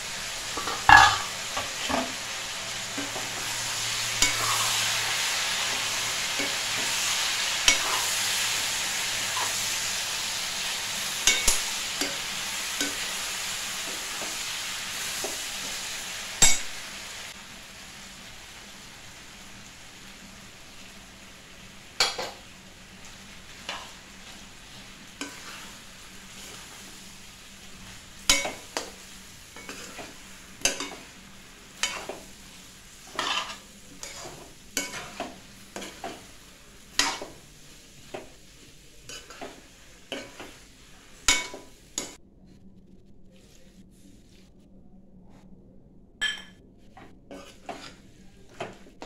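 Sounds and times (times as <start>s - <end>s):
frying sizzle: 0.0s - 42.2s, 47.3s - 49.0s
metal spoon scraping a pan: 0.5s - 9.8s, 25.2s - 26.9s, 28.2s - 31.2s, 31.8s - 32.3s, 33.0s - 36.3s, 36.9s - 37.4s, 39.0s - 40.6s, 47.3s - 48.8s.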